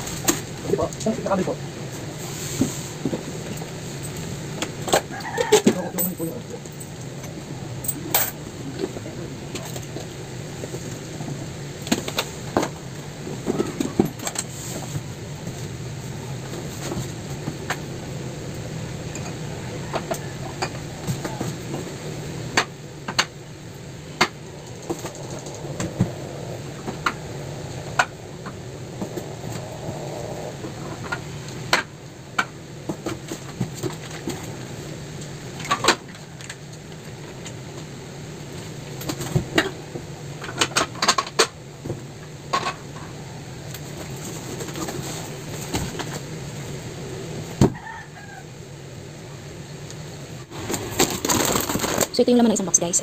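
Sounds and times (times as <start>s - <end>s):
steady low hum: 0.0s - 53.0s
packets and cans rustling and knocking: 50.5s - 52.2s.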